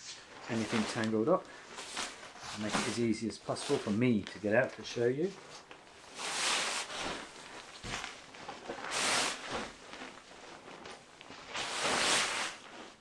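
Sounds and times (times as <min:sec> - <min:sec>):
sleeping bag fabric rustling: 0:00.3 - 0:13.0.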